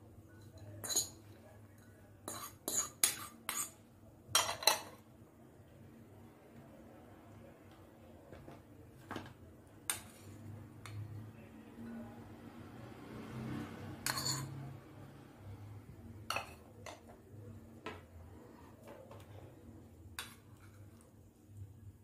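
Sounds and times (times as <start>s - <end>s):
spoon clinking against bowls: 0.3s - 5.0s, 14.0s - 14.6s, 16.3s - 17.1s.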